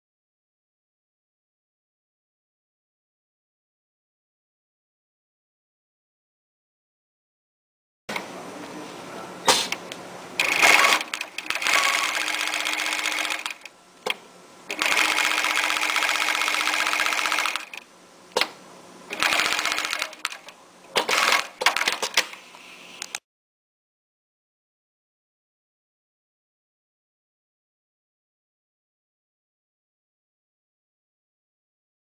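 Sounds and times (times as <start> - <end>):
sewing machine stitching: 10.4 - 13.7, 14.7 - 17.8, 19.1 - 22.4.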